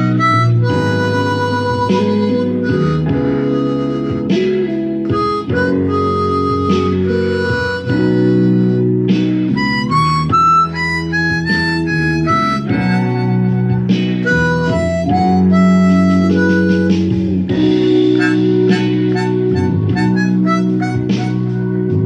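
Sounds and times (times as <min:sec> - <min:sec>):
blues guitar backing: 0:00.0 - 0:22.0
harmonica blues solo: 0:00.0 - 0:22.0.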